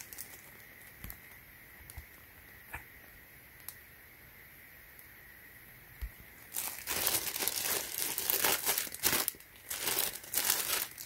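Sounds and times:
plastic packaging crinkling: 0:00.0 - 0:02.2, 0:06.4 - 0:11.0.

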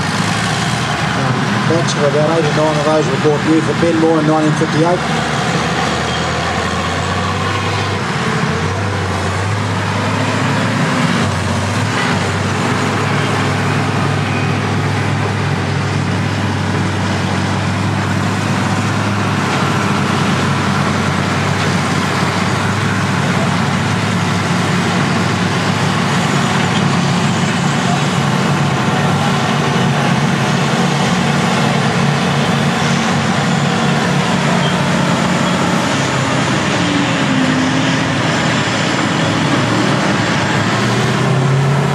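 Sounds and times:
diesel engines of earthmoving machines: 0:00.0 - 0:41.9.

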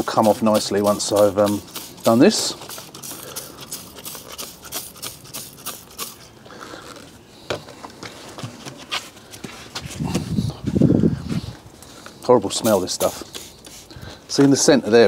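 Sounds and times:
spray bottle squirting: 0:00.0 - 0:07.0, 0:12.5 - 0:14.6.

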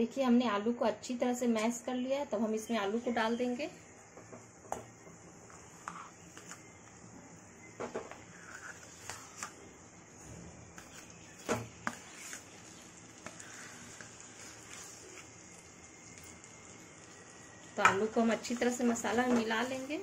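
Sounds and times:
potato scraped from steel bowl: 0:08.2 - 0:09.6, 0:10.8 - 0:15.3.

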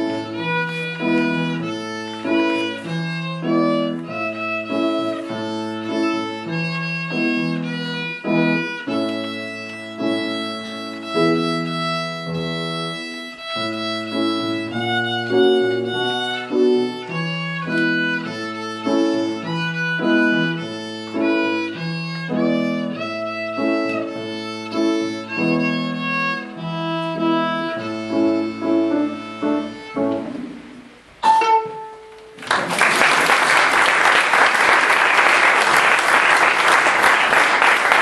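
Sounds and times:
violin playing: 0:00.0 - 0:32.3
piano accompaniment: 0:00.0 - 0:38.0
audience applause: 0:32.4 - 0:38.0.

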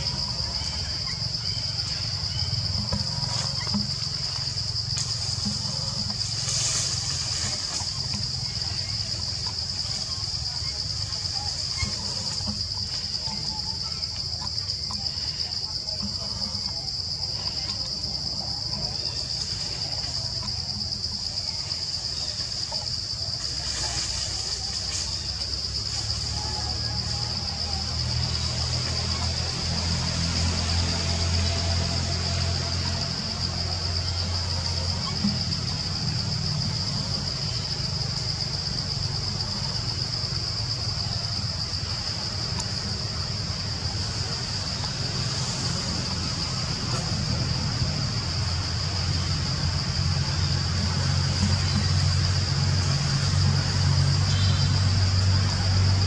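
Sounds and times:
low steady rumble: 0:00.0 - 0:26.1
high-pitched insect drone: 0:00.0 - 0:56.0.

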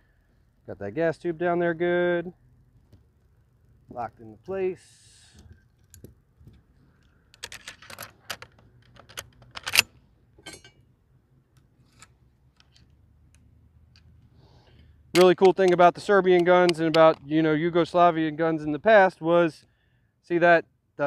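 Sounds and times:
rifle parts clicking and clacking: 0:07.0 - 0:10.8, 0:11.9 - 0:14.1, 0:15.2 - 0:17.3.

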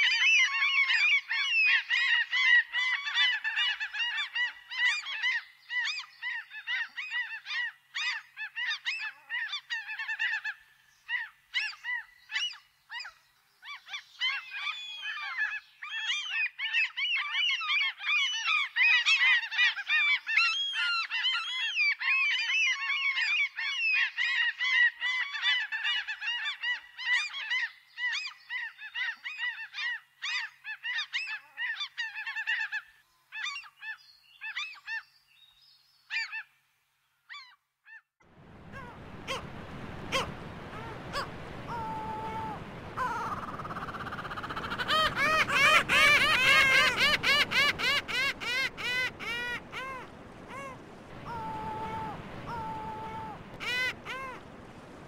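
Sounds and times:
gulls squawking: 0:38.4 - 0:55.0.

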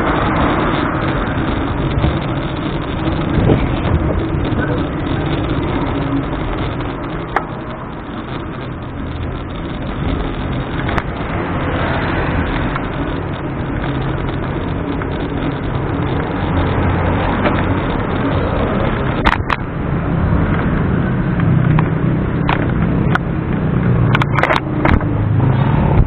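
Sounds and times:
sharp clicks: 0:00.0 - 0:19.7
motorcycle engine: 0:00.0 - 0:26.0
road rumble: 0:00.0 - 0:26.0
wind noise: 0:00.0 - 0:26.0.

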